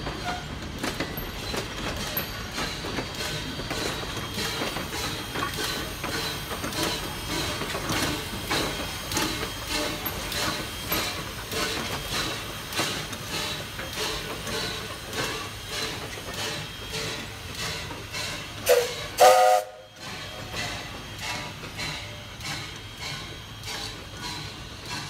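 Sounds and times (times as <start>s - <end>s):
steam locomotive chuffing: 0.0s - 25.0s
steam whistle blasts: 18.6s - 20.0s.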